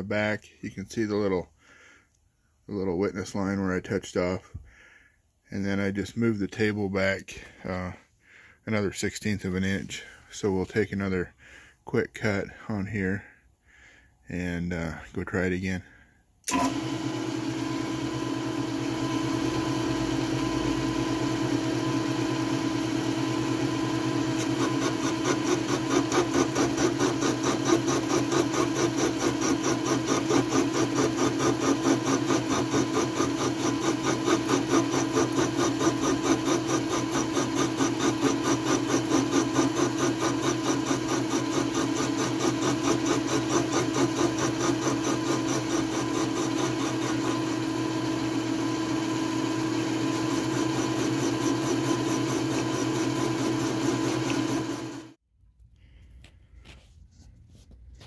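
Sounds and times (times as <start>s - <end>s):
milling machine hum: 16.5s - 55.2s.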